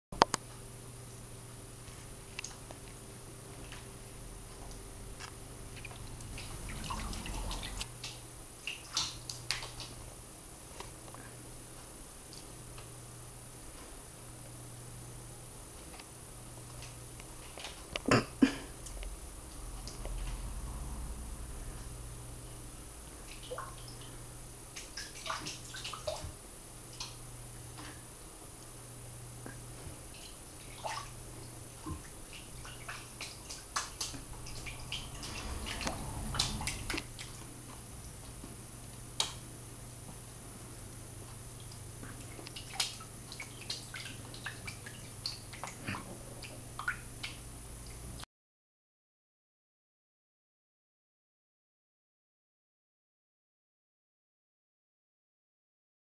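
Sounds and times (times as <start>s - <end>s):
steady low hum: 0.2s - 48.2s
small water splashes and drips: 5.8s - 10.0s, 23.2s - 27.2s, 30.1s - 37.4s, 41.5s - 48.1s.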